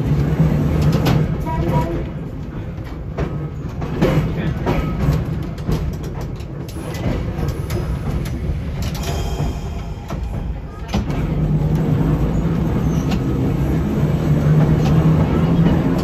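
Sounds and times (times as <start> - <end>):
wheels rumbling on rail: 0.0 - 16.0
clicks and knocks from wheels: 0.1 - 9.0.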